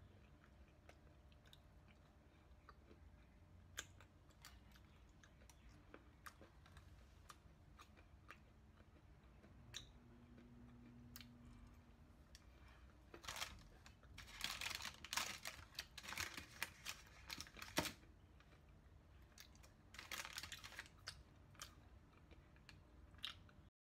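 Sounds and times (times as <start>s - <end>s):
baking paper crinkling: 12.7s - 18.1s, 20.0s - 21.1s.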